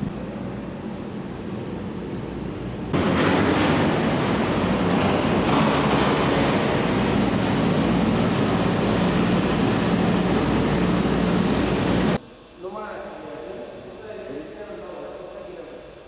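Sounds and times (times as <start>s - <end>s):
loud rushing noise: 0.0s - 12.2s
rally car engine running hard: 0.0s - 12.2s.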